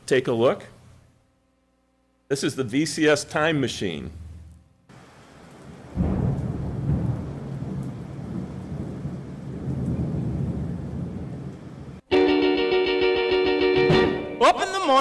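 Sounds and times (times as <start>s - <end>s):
deep thunder-like rumbling: 5.8s - 12.0s.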